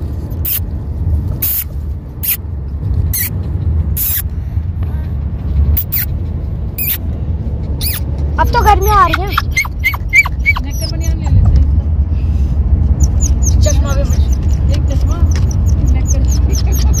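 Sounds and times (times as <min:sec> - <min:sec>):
car cabin road rumble: 0:00.0 - 0:17.0
short sharp high squeaks: 0:00.4 - 0:00.6, 0:03.1 - 0:03.4, 0:04.0 - 0:04.2, 0:05.8 - 0:06.1, 0:06.8 - 0:07.0, 0:07.8 - 0:08.7.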